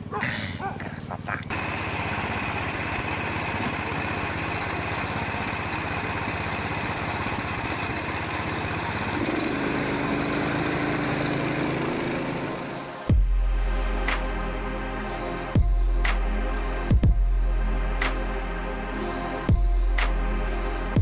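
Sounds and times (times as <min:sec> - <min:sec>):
small engine running: 0:00.0 - 0:13.1
steady whine: 0:01.3 - 0:20.9.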